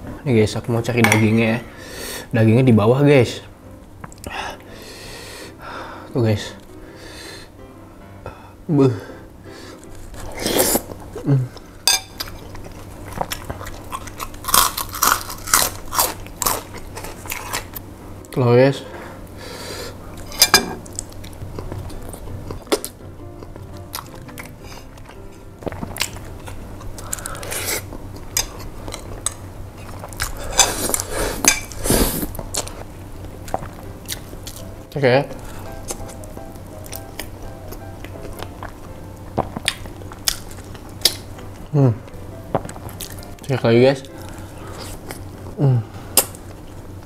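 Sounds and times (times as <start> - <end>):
crunching crisp crackers: 12.2 - 17.8.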